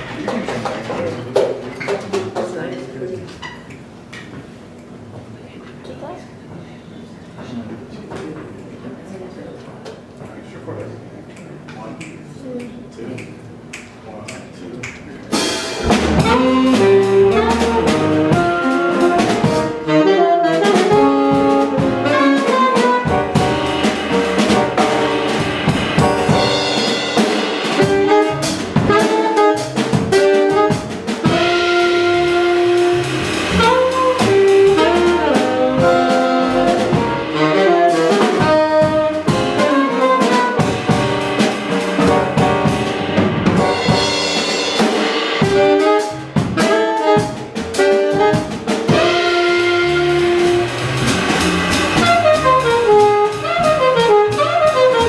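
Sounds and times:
drum kit: 13.2s - 55.0s
upright bass: 15.2s - 19.9s, 20.6s - 55.0s
piano: 15.2s - 55.0s
saxophones playing melody: 15.8s - 55.0s.

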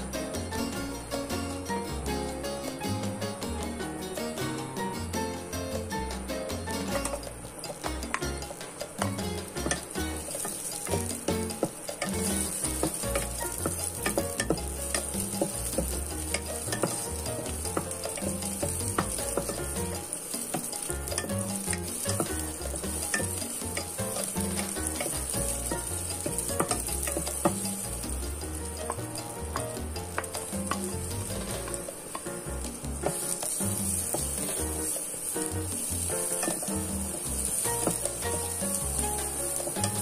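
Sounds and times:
onions sizzling in oil: 0.0s - 40.0s
wooden spatula scraping pan: 9.4s - 40.0s.

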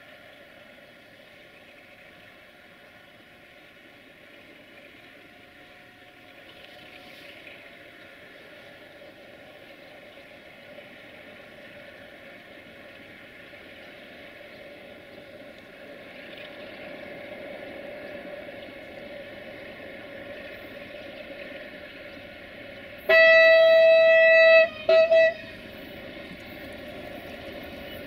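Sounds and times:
train running: 0.0s - 28.0s
locomotive horn blasts: 23.0s - 25.8s.

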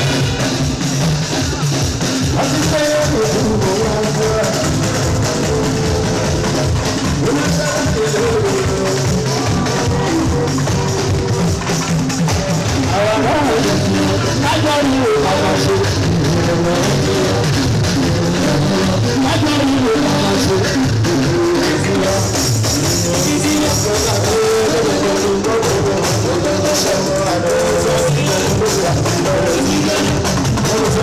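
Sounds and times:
drums and percussion: 0.0s - 31.0s
live band music: 0.0s - 31.0s
man singing: 0.0s - 31.0s.

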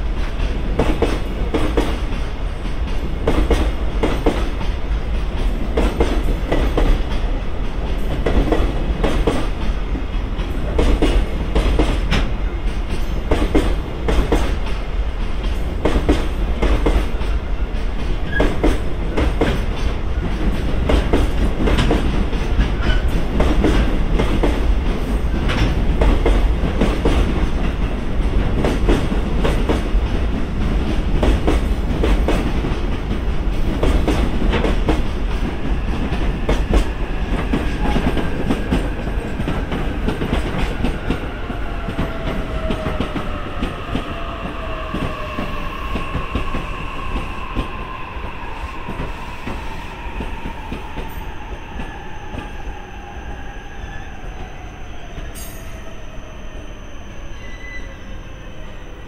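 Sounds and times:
long slowly falling tones: 41.2s - 55.5s.

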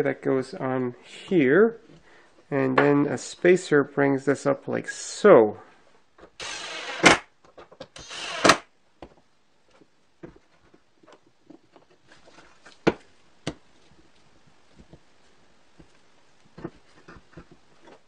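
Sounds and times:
impact driver driving screws: 6.4s - 7.2s, 8.0s - 8.6s.

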